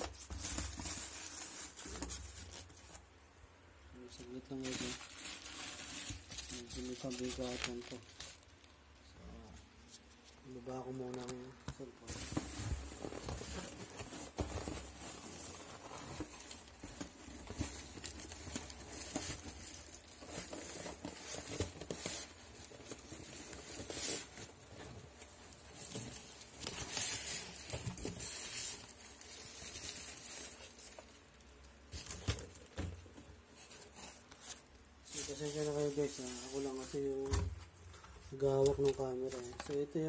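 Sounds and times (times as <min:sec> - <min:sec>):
packaging rustling and crinkling: 0:00.0 - 0:03.2, 0:04.0 - 0:40.0.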